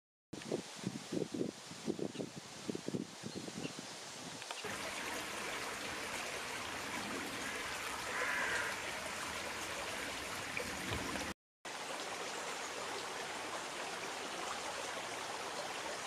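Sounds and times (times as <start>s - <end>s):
stream trickling over stones: 4.2s - 16.0s.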